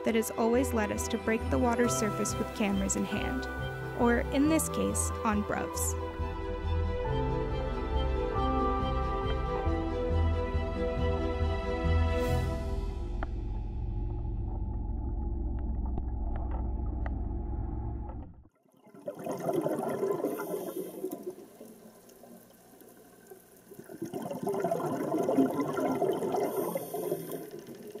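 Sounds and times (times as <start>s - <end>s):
low sustained soundtrack music: 0.0s - 18.2s.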